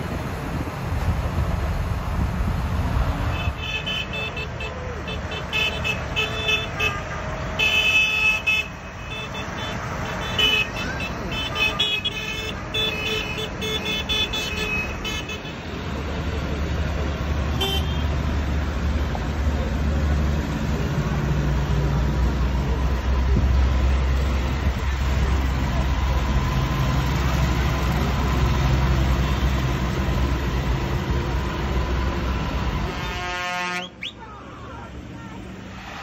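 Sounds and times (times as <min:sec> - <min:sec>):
tractor diesel engine running: 0:19.1 - 0:32.8.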